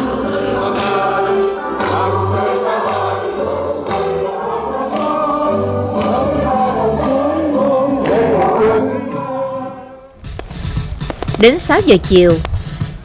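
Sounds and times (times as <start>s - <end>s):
men and women singing together: 0.0s - 10.1s.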